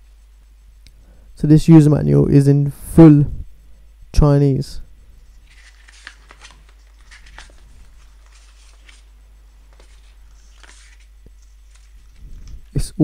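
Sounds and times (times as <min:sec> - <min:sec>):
paper pages rustling: 0:05.3 - 0:12.8.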